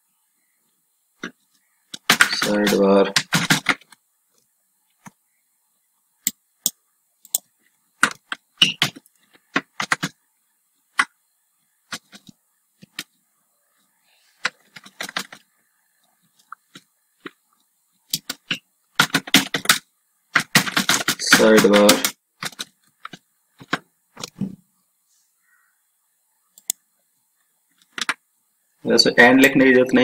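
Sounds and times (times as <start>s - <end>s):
keyboard typing clicks: 1.2s - 4.0s, 6.2s - 10.2s, 18.1s - 24.4s, 26.6s - 26.8s.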